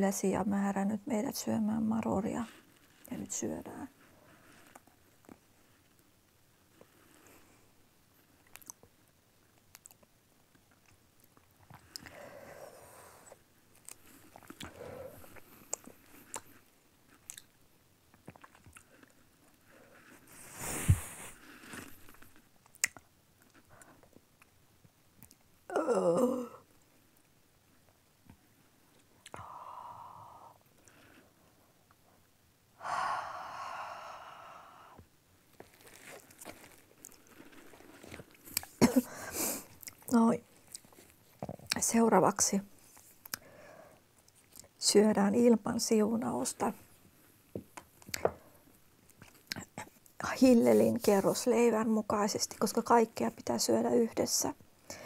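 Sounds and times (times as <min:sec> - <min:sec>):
person chewing: 0:13.7 - 0:19.2, 0:21.7 - 0:23.6, 0:35.6 - 0:38.8, 0:39.7 - 0:41.8
mouth clicks and smacks: 0:22.6 - 0:23.1
person breathing out heavily: 0:32.8 - 0:35.0.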